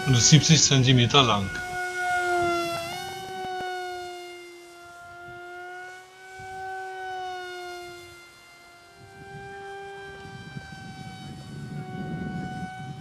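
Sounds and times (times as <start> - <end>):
model airplane propeller whining: 0.0 - 13.0.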